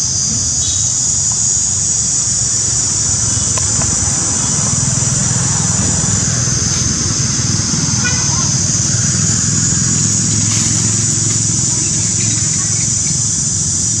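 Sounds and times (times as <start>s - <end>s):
insect chorus drone: 0.0s - 14.0s
faint ticks: 3.1s - 4.7s.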